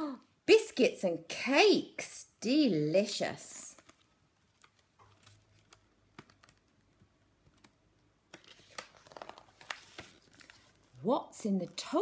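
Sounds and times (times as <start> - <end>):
page turning: 3.8 - 11.0.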